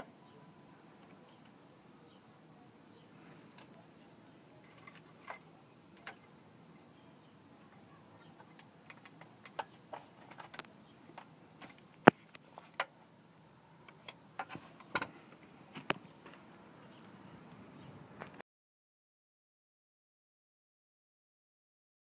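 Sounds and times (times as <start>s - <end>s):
hands handling parts clicking: 8.2s - 13.0s, 13.8s - 17.2s.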